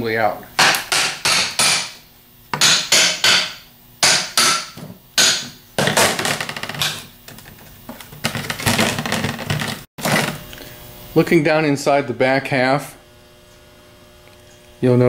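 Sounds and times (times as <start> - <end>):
hammer striking metal case: 0.6 - 7.0.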